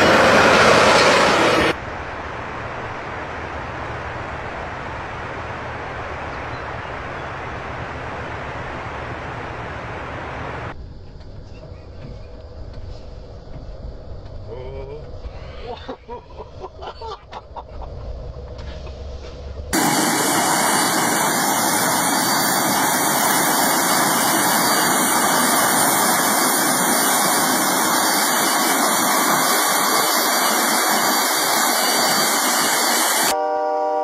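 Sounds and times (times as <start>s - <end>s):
snow blower roaring with whine: 0.0s - 1.8s, 19.7s - 33.4s.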